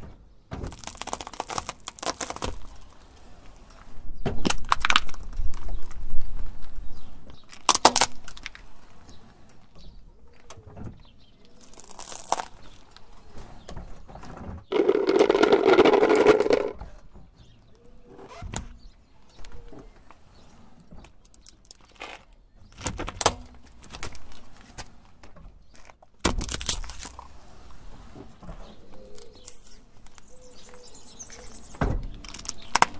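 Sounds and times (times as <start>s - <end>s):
plastic hard hat crushing: 0.5s - 3.0s, 4.4s - 6.0s, 7.4s - 8.6s, 11.5s - 13.0s, 14.7s - 16.8s, 25.7s - 27.3s, 32.1s - 32.9s
tyre crushing small objects: 0.5s - 3.1s, 4.4s - 6.4s, 7.3s - 8.7s, 11.4s - 13.1s, 14.7s - 16.8s, 21.2s - 24.9s, 25.7s - 27.3s, 32.1s - 32.9s
toy car cracking: 7.5s - 8.6s, 11.6s - 12.6s, 14.7s - 16.8s, 32.2s - 32.9s.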